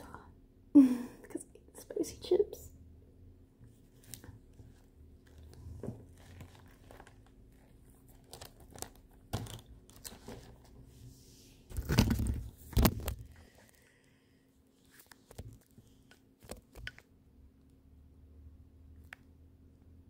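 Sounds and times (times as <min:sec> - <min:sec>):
paper rustling: 0:03.9 - 0:10.9, 0:11.6 - 0:13.8.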